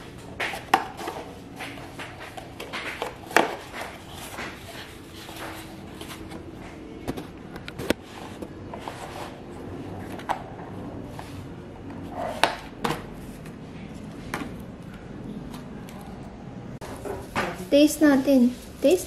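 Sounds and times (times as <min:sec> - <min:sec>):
food containers clicking and knocking: 0:00.0 - 0:04.7
low background noise: 0:00.0 - 0:19.0.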